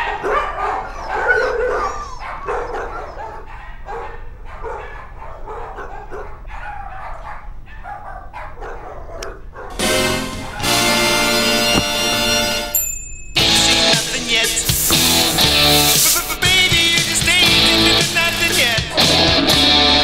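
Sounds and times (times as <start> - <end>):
dogs barking and yapping: 0.0 - 12.6.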